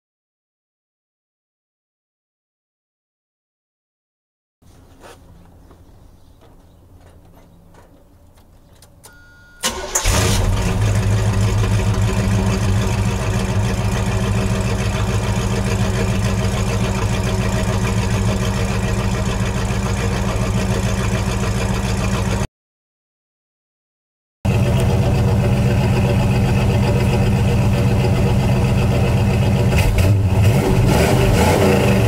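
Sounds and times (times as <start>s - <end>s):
engine cranking: 8.4s - 22.4s
car engine idling loudly: 10.0s - 22.5s, 24.5s - 32.0s.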